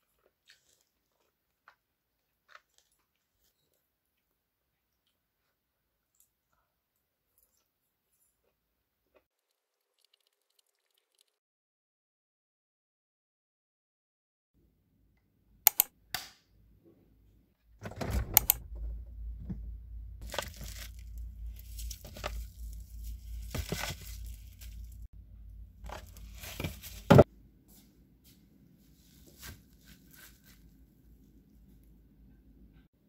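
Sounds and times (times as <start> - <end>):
sharp clicks: 15.7 - 16.3
low refrigerator hum: 16.7 - 32.9
plastic wrap rustling and crinkling: 20.2 - 25.1, 25.8 - 27.3, 28.8 - 30.8.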